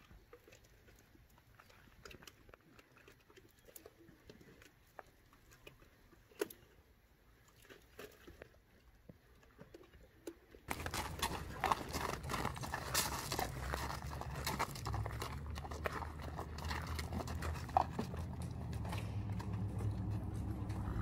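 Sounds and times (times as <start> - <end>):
horse hoofbeats clip-clop: 9.1 - 21.0.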